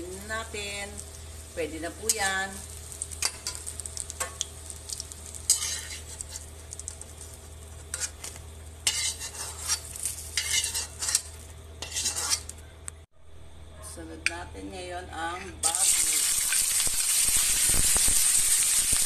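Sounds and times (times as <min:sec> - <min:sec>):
oil sizzling: 0:00.0 - 0:12.6, 0:15.6 - 0:19.0
metal spatula scraping a wok: 0:05.4 - 0:06.5, 0:07.9 - 0:12.5.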